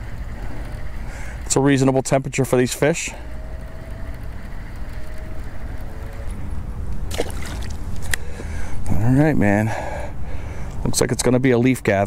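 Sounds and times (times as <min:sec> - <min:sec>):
fishing reel spool whirring: 0:00.0 - 0:08.9
lure splashing into water: 0:07.1 - 0:07.9.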